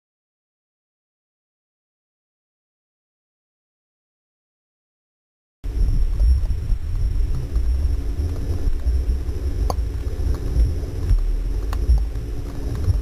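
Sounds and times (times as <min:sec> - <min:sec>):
underwater rumble of water: 0:05.7 - 0:13.0.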